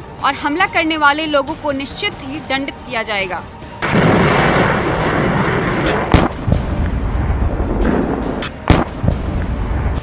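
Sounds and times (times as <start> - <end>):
sharp bangs: 3.8 - 9.6.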